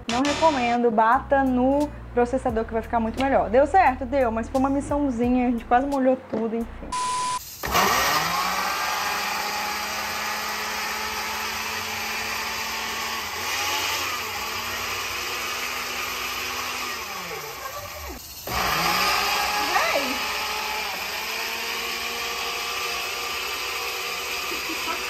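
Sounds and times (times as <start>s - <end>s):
blender motor running: 7.0s - 25.0s.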